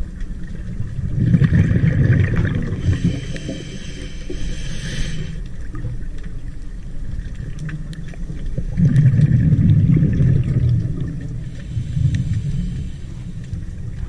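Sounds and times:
low underwater rumble: 0.0s - 14.0s
faint clicks: 11.5s - 14.0s.

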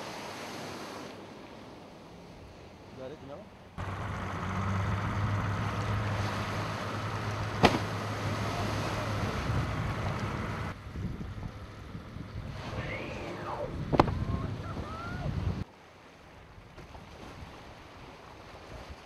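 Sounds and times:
water noise: 0.0s - 19.0s
wind: 0.0s - 19.0s
boat engine humming: 1.6s - 15.6s.

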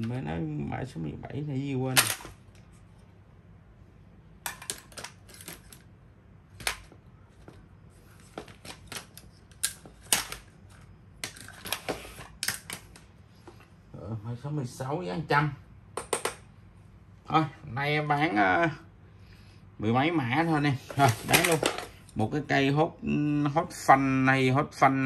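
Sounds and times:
small tools clicking and clattering: 4.5s - 5.9s, 8.2s - 13.0s.

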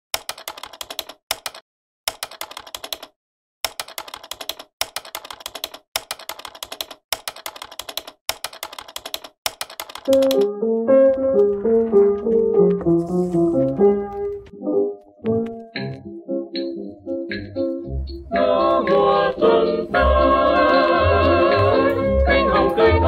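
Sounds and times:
typewriter keys clicking: 0.2s - 10.5s.

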